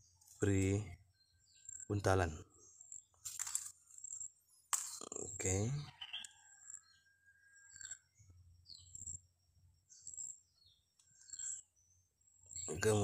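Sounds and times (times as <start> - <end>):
small birds chirping: 0.0 - 13.0
hands handling string: 3.2 - 3.8.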